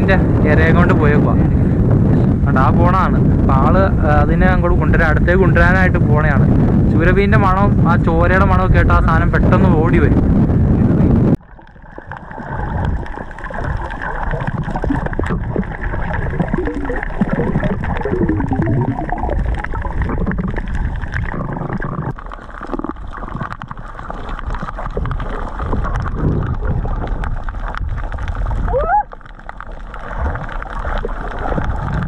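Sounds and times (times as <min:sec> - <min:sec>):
underwater water rumble: 0:00.0 - 0:32.0
water gurgling: 0:00.0 - 0:32.0
small underwater clicks: 0:11.4 - 0:32.0.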